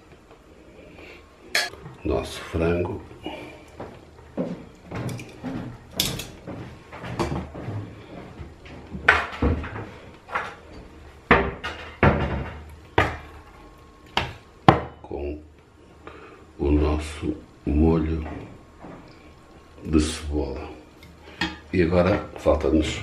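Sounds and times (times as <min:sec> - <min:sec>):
utensils and dishware clinking: 0:01.5 - 0:01.8, 0:04.9 - 0:06.5.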